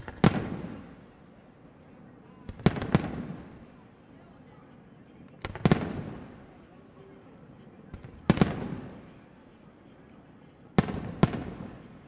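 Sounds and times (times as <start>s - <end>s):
firework bangs with echo: 0.0s - 0.9s.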